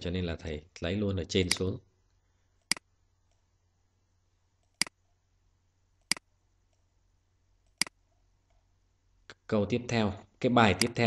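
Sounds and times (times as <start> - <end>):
computer mouse clicks: 7.6 - 8.0.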